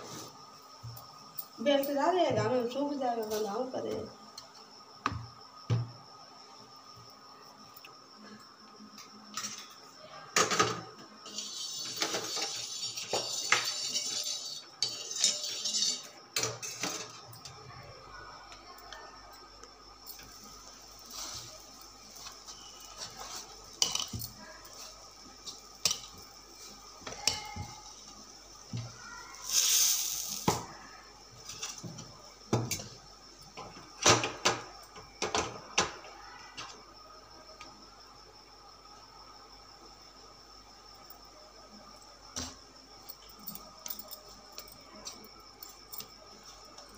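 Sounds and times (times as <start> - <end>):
kitchen utensils clattering: 10.4 - 17.5, 21.2 - 26.2
gas stove hiss: 10.4 - 44.5.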